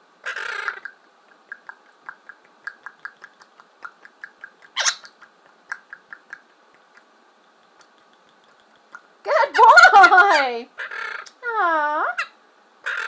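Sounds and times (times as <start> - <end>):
parrot harsh squawk: 0.2 - 0.8, 4.8 - 5.1, 10.8 - 11.3, 12.1 - 13.0.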